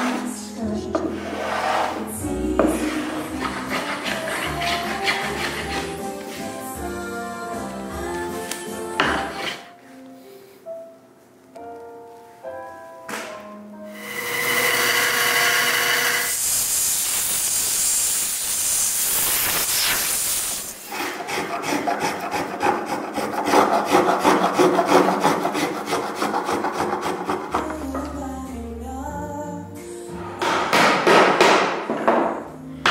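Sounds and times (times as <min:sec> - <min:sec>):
hand tool scraping wood: 0:01.0 - 0:06.9, 0:08.5 - 0:09.7, 0:20.8 - 0:28.2.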